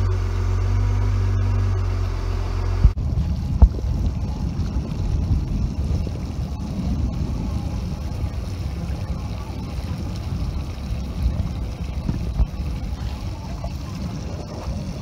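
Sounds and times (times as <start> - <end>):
outboard motor running: 0.0 - 15.0
water rushing past: 0.0 - 15.0
wind buffeting microphone: 2.8 - 15.0.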